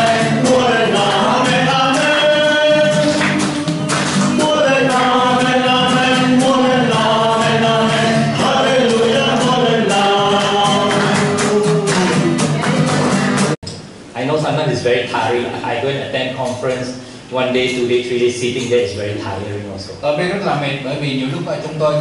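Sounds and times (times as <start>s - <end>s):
men singing: 0.0s - 12.6s
strummed acoustic guitar: 0.0s - 13.6s.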